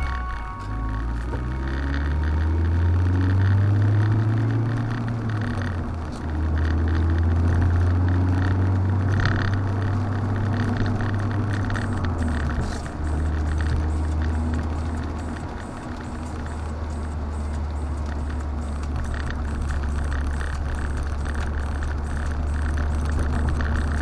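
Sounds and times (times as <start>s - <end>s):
car engine pulling: 0.0s - 24.0s
tyres hissing on wet road: 12.5s - 23.8s.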